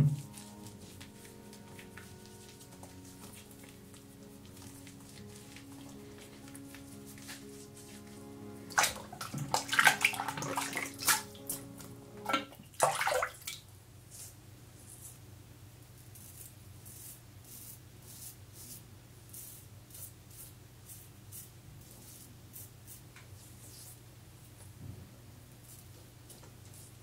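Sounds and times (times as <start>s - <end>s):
water splashing in a sink: 8.7s - 11.3s, 12.2s - 13.6s.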